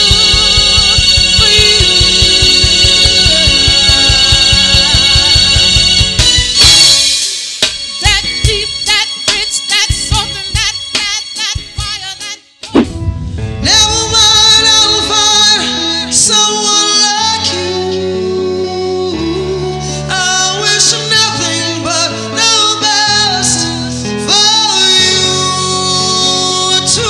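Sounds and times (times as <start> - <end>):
bass line: 0.0 - 6.7, 12.7 - 16.6.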